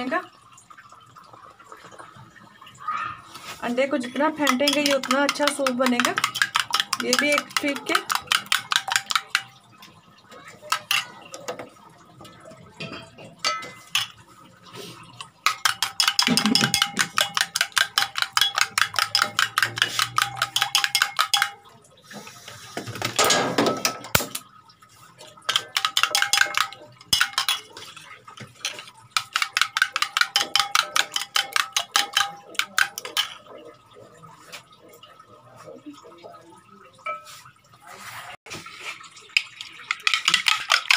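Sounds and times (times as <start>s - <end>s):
spoon beating egg in steel bowl: 3.4s - 9.7s, 10.6s - 11.7s, 12.8s - 22.5s, 23.8s - 33.8s, 38.9s - 40.9s.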